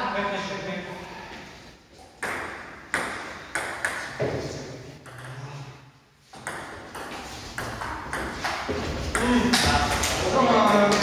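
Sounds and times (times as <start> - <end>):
table tennis ball hits: 2.2 - 5.5, 6.4 - 11.0.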